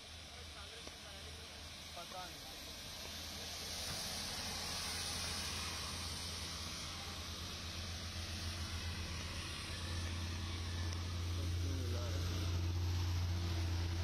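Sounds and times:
tyres spraying on wet road: 0:00.0 - 0:14.0
low hum: 0:04.6 - 0:14.0.

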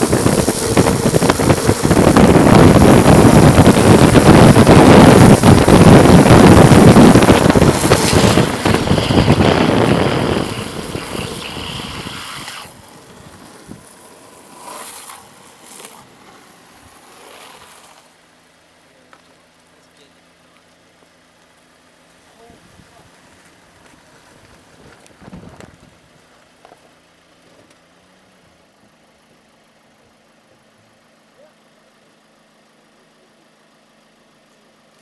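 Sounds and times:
wind rushing over microphone: 0:00.0 - 0:13.9
tyres hissing on wet road: 0:00.0 - 0:18.2.

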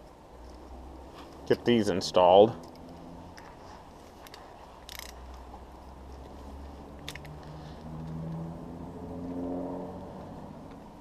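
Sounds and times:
sharp metal clicks: 0:04.2 - 0:05.5, 0:07.0 - 0:07.5.

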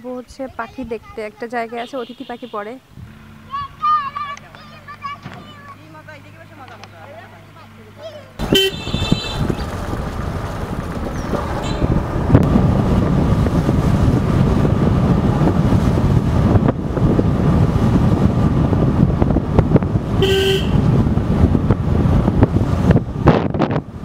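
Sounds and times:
road rumble: 0:00.0 - 0:24.0
vehicle horn honk: 0:01.8 - 0:02.8, 0:08.4 - 0:09.6, 0:20.2 - 0:20.9
wind buffeting: 0:08.4 - 0:24.0.

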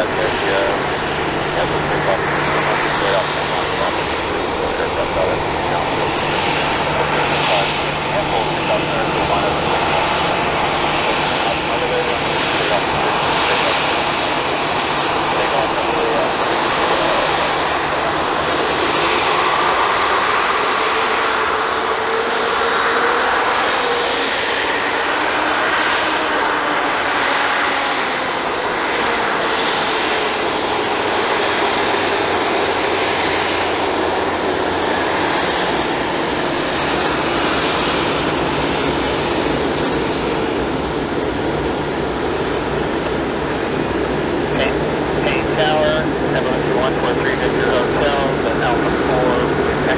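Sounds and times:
jet engines at taxi power: 0:00.0 - 0:49.9.

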